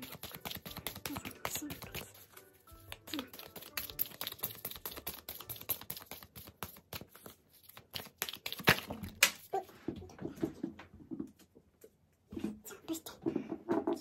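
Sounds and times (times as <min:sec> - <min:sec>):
cards being shuffled: 0:00.0 - 0:09.5.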